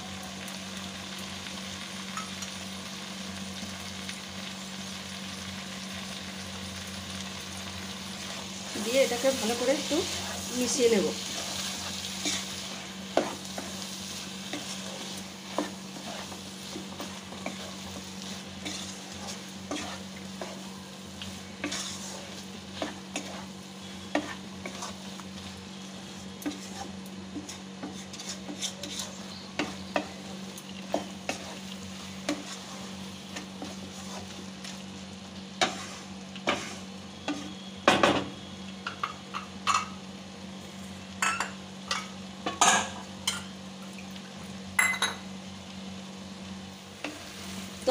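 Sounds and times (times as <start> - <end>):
food sizzling in a wok: 0.0 - 47.9
spatula scraping the pan: 8.1 - 30.3, 30.9 - 34.6, 35.6 - 37.7.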